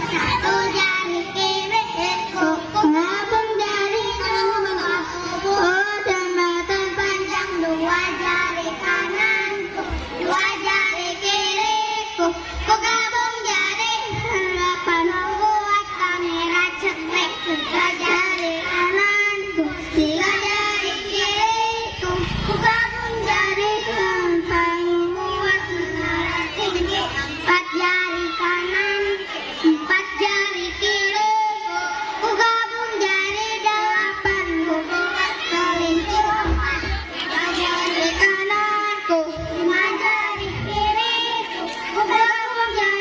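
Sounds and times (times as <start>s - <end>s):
children singing: 0.0s - 43.0s.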